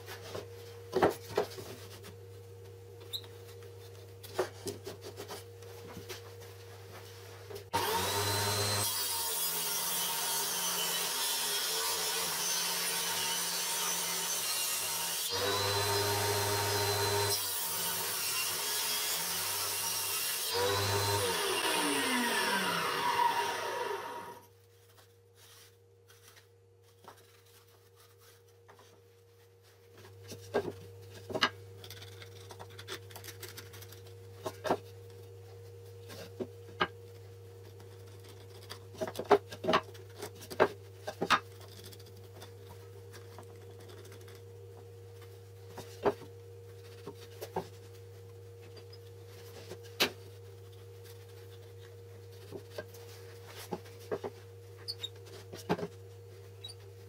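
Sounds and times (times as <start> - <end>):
table saw whining: 7.8 - 24.5.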